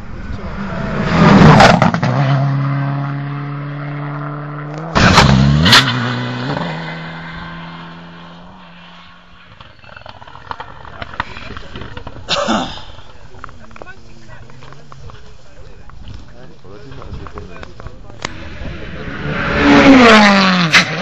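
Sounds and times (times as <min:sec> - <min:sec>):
rally car engine at high revs: 0:00.2 - 0:09.6, 0:18.2 - 0:21.0.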